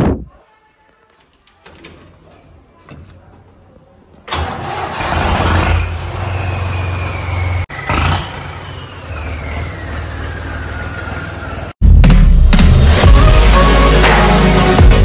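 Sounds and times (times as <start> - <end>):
tractor diesel engine running: 4.3 - 11.8
faint high whistle: 8.5 - 10.8.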